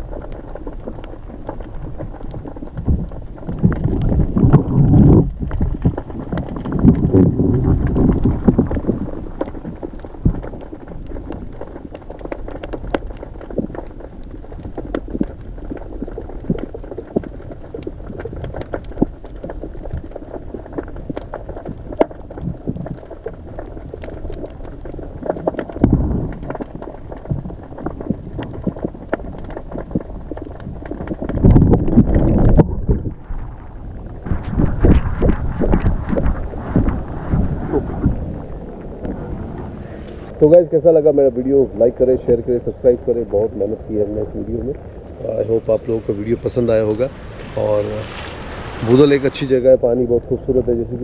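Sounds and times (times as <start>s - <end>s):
clicks and crackles: 0.0s - 51.0s
underwater rumble of moving water: 0.0s - 51.0s
water rushing: 34.2s - 41.1s, 44.8s - 50.1s.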